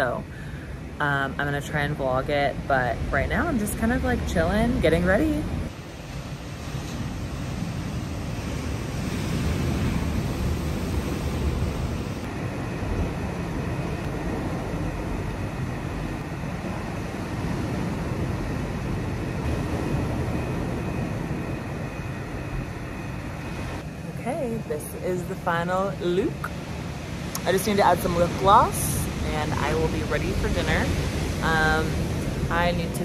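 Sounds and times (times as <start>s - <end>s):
wind rumbling on microphone: 0.0s - 33.0s
ocean surf breaking: 5.5s - 22.2s.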